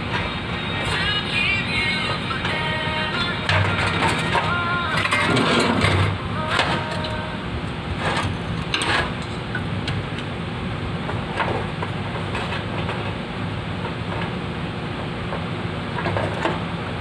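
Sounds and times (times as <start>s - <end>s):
metal parts scraping and knocking: 0.0s - 7.2s, 8.0s - 9.6s, 11.3s - 13.2s
steady low hum: 0.0s - 17.0s.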